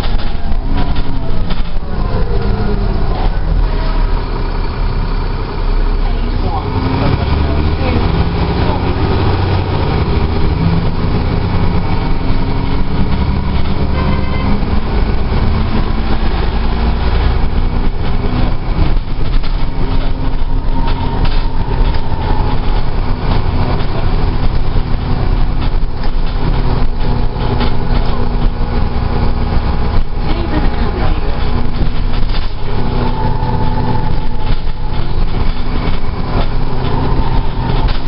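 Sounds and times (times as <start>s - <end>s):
bus body rattling: 0.0s - 38.0s
bus diesel engine drone: 0.0s - 38.0s.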